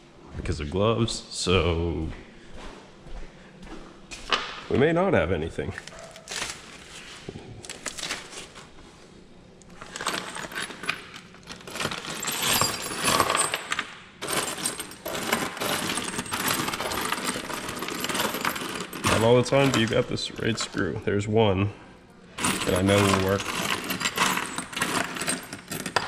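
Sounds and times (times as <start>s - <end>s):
metal bolts clinking and rattling: 9.7s - 20.9s, 22.4s - 26.0s.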